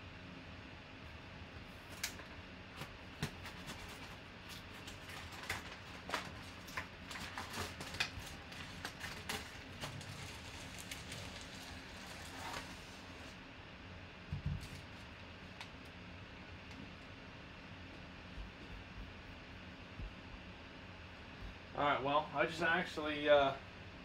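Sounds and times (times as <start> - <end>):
packaging rustling and crinkling: 1.8 - 13.4
small clicks and crackles: 3.2 - 12.8.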